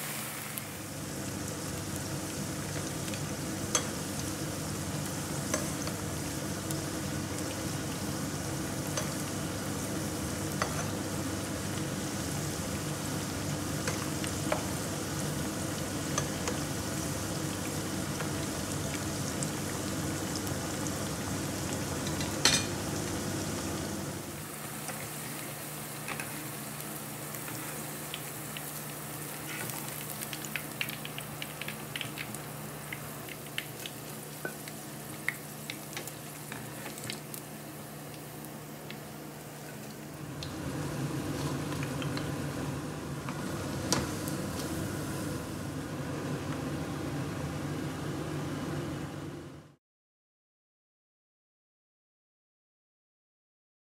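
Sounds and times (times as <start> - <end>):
food deep-frying in oil: 0.0 - 47.5
oil crackling and popping: 27.4 - 37.5.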